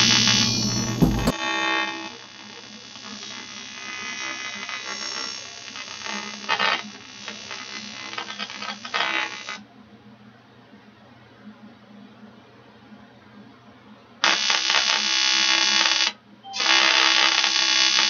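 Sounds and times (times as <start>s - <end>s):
welding arc buzzing: 0.0s - 9.6s, 14.2s - 18.0s.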